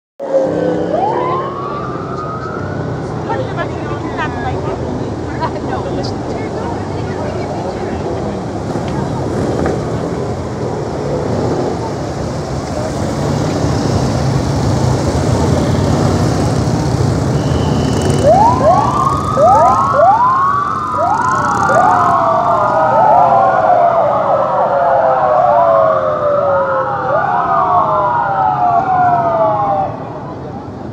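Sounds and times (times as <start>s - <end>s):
police sirens wailing: 0.2s - 30.9s
motorcycle engines passing: 0.4s - 24.2s.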